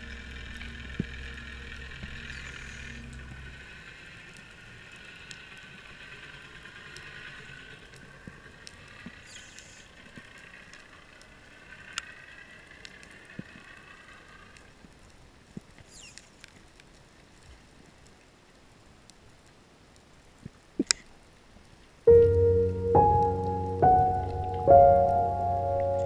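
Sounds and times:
distant boat motor whine: 0:00.0 - 0:08.2, 0:22.1 - 0:26.0
low hum: 0:00.0 - 0:14.8, 0:22.1 - 0:26.0.

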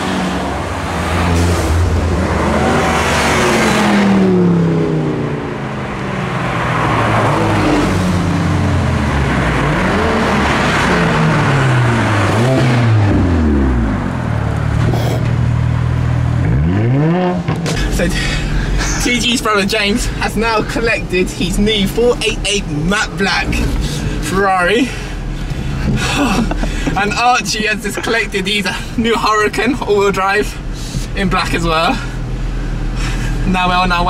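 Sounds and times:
cars driving past revving: 0:00.0 - 0:21.2.

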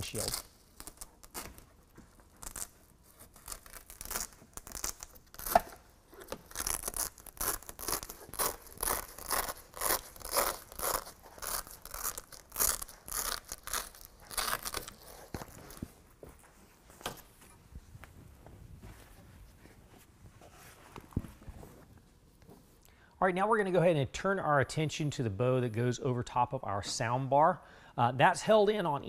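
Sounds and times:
velcro ripping: 0:00.0 - 0:15.9.

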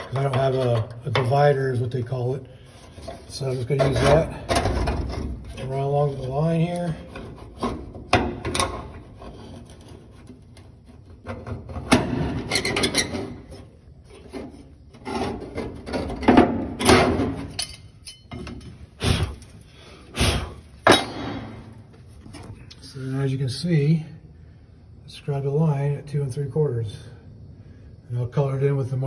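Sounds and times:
metal tool scraping sheet steel: 0:02.7 - 0:16.2.

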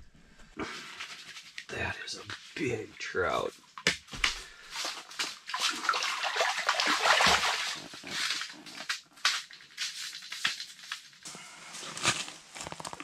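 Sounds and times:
water splashing off a net: 0:04.8 - 0:08.5
water dripping: 0:05.5 - 0:08.3.

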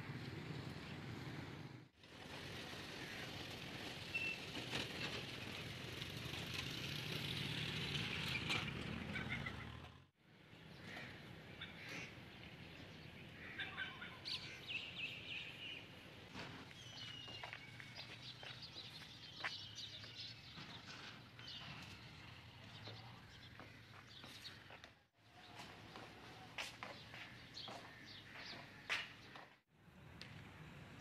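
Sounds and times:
background street rumble: 0:00.0 - 0:31.0
small birds chirping: 0:16.7 - 0:25.6.

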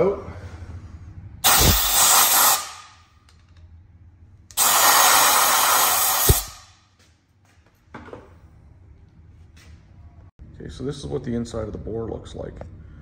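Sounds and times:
compressed air blowgun hissing: 0:01.4 - 0:02.9, 0:04.6 - 0:06.7.

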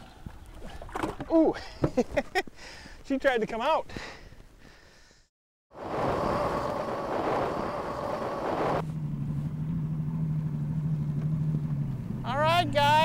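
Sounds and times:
wind on microphone: 0:05.8 - 0:08.9
boat motor running: 0:05.8 - 0:13.0.

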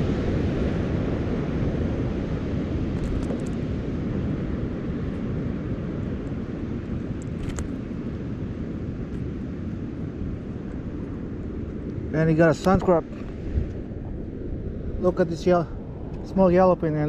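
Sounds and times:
surf washing: 0:00.0 - 0:17.0
wind rumbling on microphone: 0:00.0 - 0:17.0
light clicks: 0:07.2 - 0:07.7.

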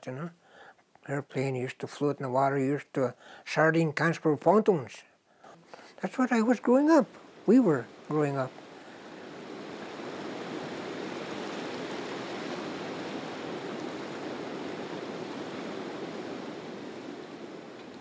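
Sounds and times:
river water rushing over rapids: 0:05.8 - 0:18.0.

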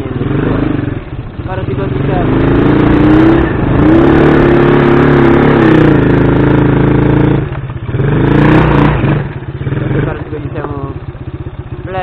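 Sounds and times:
small motorcycle engine revving: 0:00.0 - 0:12.0.

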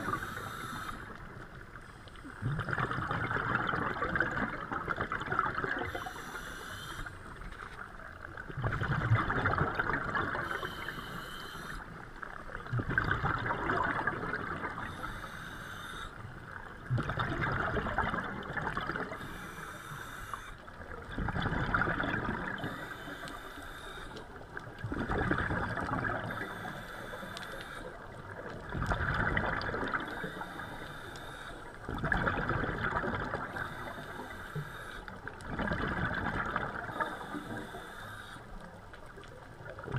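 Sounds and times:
regulator inhalation hiss: 0:00.0 - 0:01.2, 0:05.9 - 0:07.3, 0:10.4 - 0:12.0, 0:14.8 - 0:16.2, 0:19.2 - 0:20.6, 0:22.6 - 0:24.2, 0:26.3 - 0:28.0, 0:30.0 - 0:31.7, 0:33.5 - 0:35.0, 0:36.9 - 0:38.5
exhaled bubbles rushing: 0:02.4 - 0:06.1, 0:08.0 - 0:10.9, 0:12.4 - 0:14.9, 0:16.6 - 0:19.2, 0:20.8 - 0:22.8, 0:24.7 - 0:26.8, 0:27.9 - 0:30.4, 0:31.9 - 0:33.9, 0:35.3 - 0:37.6.

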